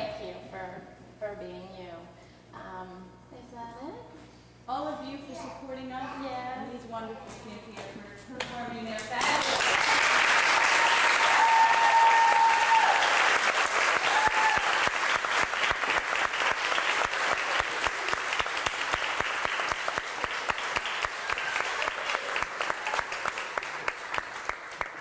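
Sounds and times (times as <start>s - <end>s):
audience applauding: 9.2s - 25.0s.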